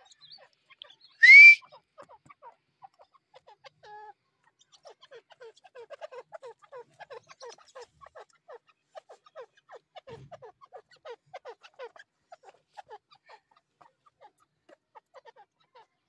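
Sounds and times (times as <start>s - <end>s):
bird clucking: 1.2s - 2.3s.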